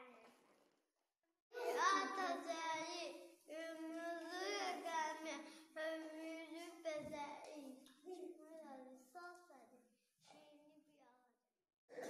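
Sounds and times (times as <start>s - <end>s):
child singing: 1.6s - 7.8s.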